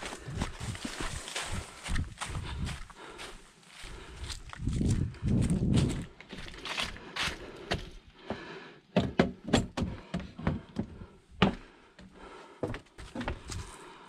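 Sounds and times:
knocks and thumps on wooden boards: 8.3 - 13.5.

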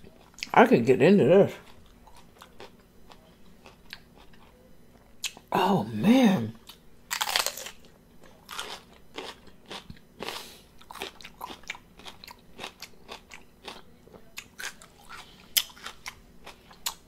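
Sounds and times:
chewing crunchy pepper: 1.5 - 5.5, 6.6 - 17.0.

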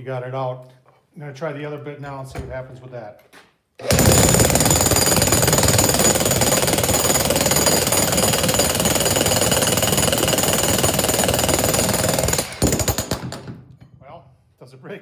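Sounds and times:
demolition hammer chiselling concrete: 3.8 - 13.7.

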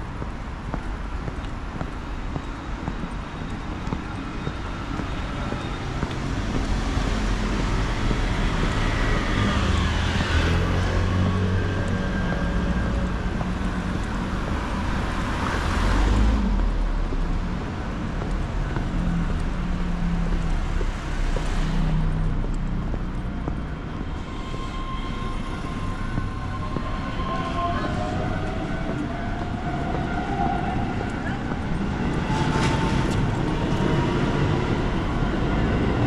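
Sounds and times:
road noise hum: 0.0 - 36.0
vehicles passing close by: 0.0 - 36.0.

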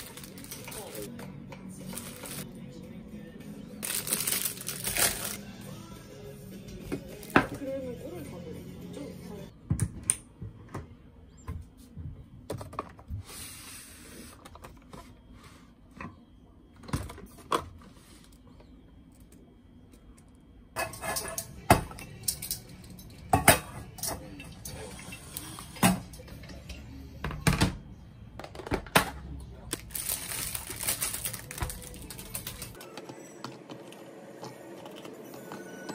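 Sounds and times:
plastic bottles clattering in basket: 3.8 - 5.4.

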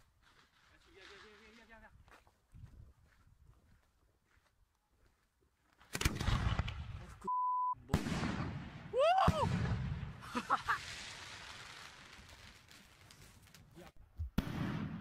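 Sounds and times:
steady beep: 7.3 - 7.8
firework bangs with rumbling echo: 8.0 - 10.3, 14.4 - 15.0
person shouting: 8.9 - 9.6.

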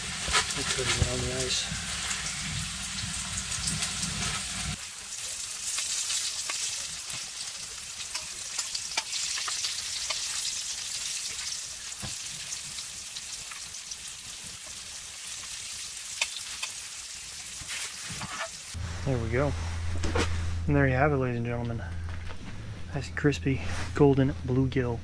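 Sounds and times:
fish fillets sizzling in oil: 0.0 - 18.8.

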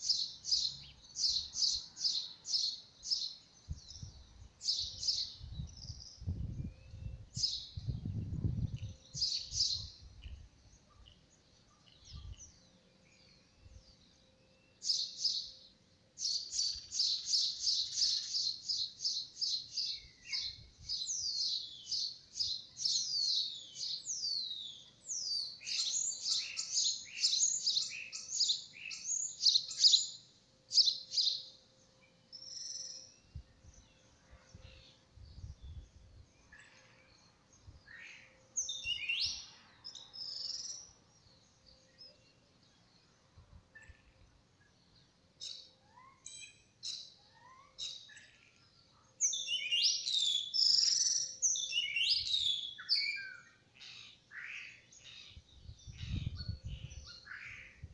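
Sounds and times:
small birds chirping: 0.0 - 57.9.

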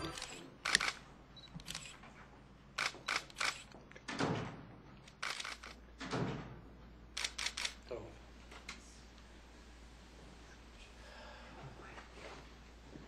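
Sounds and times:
camera shutters clicking: 0.0 - 1.0, 1.6 - 2.0, 2.8 - 3.7, 5.0 - 5.8, 7.2 - 7.8
low room noise: 0.0 - 13.0.

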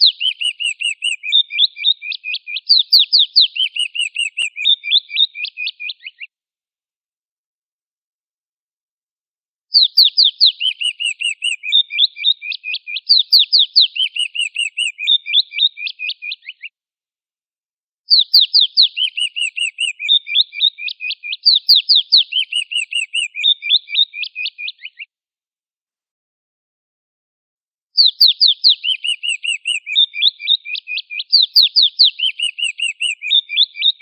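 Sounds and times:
high whistled raptor call: 0.0 - 6.3, 9.7 - 16.6, 18.1 - 25.1, 28.0 - 33.9.

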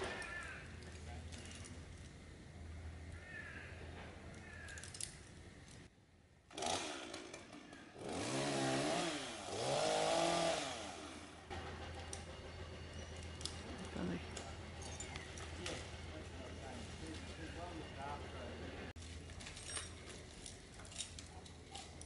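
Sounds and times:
chainsaw revving: 6.5 - 12.3.

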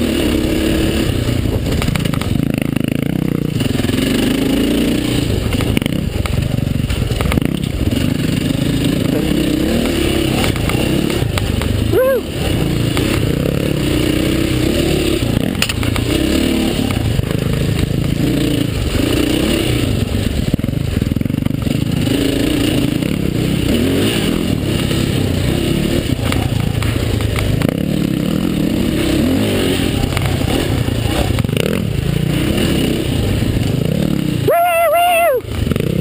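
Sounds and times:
dirt bike engine revving: 0.0 - 36.0
bike clattering over rough ground: 1.2 - 4.0, 5.0 - 13.8, 15.1 - 19.0, 26.0 - 28.5.

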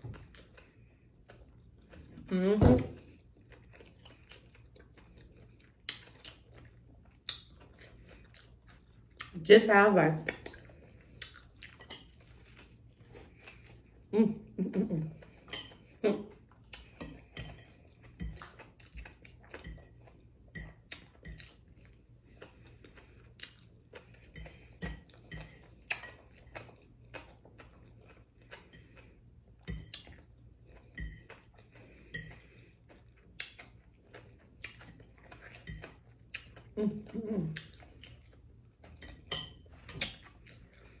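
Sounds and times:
close-up chewing: 0.0 - 2.3, 3.0 - 9.4, 10.2 - 14.1, 15.1 - 41.0
fork clinking against a plate: 15.4 - 15.9, 17.0 - 18.4, 24.3 - 26.7, 31.0 - 31.4, 39.0 - 40.2.

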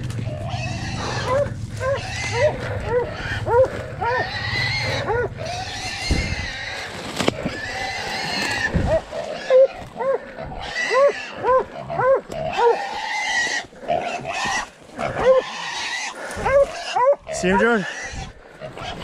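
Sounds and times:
brush crackling: 0.0 - 19.0
dogs baying: 0.2 - 6.4, 8.8 - 13.0, 14.9 - 17.9
hog squealing: 0.3 - 9.9, 10.6 - 19.0
dog barks: 1.2 - 4.3, 5.0 - 5.4, 8.9 - 10.2, 10.9 - 12.8, 15.1 - 15.4, 16.4 - 17.8.

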